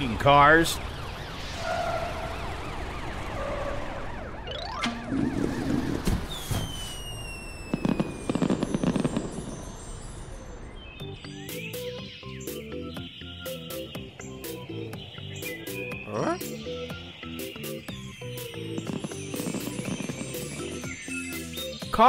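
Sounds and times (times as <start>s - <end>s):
police siren wailing: 0.0s - 9.3s, 14.7s - 21.6s
rising whoosh: 0.8s - 10.8s
long falling whistle: 0.9s - 10.7s
crackling fizzing sparks: 5.2s - 10.5s, 17.4s - 21.7s.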